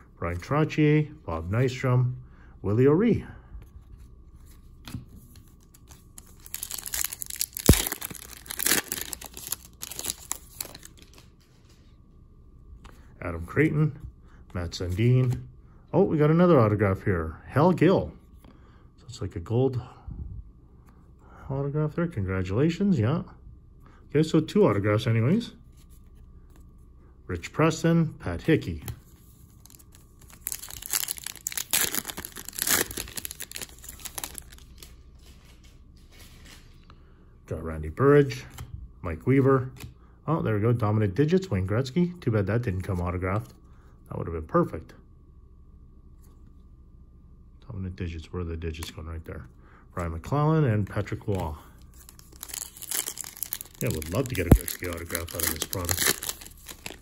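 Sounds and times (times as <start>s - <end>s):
wrapper tearing and crinkling: 5.7s - 11.3s, 29.6s - 34.9s, 51.3s - 57.0s.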